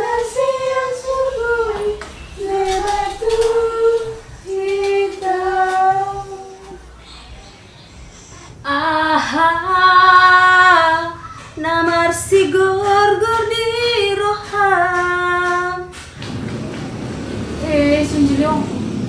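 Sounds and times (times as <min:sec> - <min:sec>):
woman singing: 0:00.0 - 0:06.8, 0:08.6 - 0:15.9, 0:17.6 - 0:18.8.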